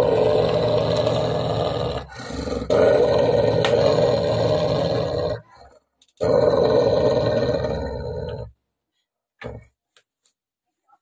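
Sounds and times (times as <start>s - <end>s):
dog growling: 0.0s - 8.6s.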